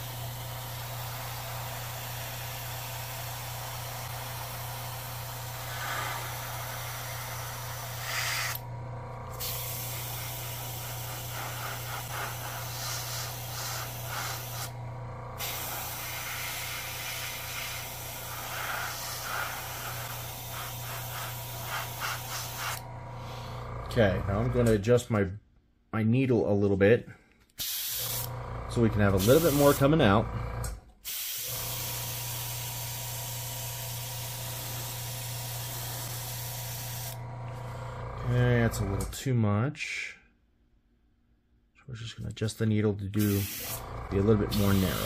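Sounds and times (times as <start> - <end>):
airbrush hissing: 0.0 - 8.6, 9.2 - 14.8, 15.4 - 23.9, 27.6 - 28.3, 29.0 - 29.9, 31.0 - 37.2, 43.2 - 45.0
steady low hum: 0.0 - 25.4, 28.0 - 31.0, 37.1 - 39.2, 43.6 - 45.0.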